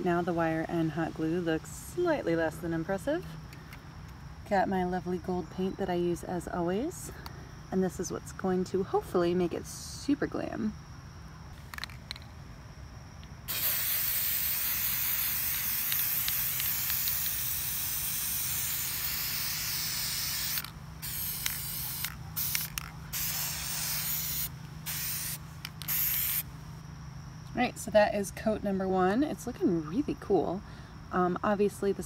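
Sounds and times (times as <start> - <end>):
spray paint can hissing: 13.5 - 26.5.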